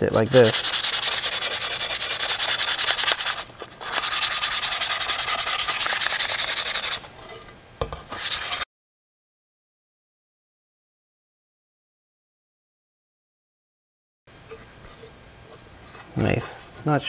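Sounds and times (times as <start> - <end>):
sandpaper scratching on glass: 0.0 - 7.1, 8.1 - 8.7.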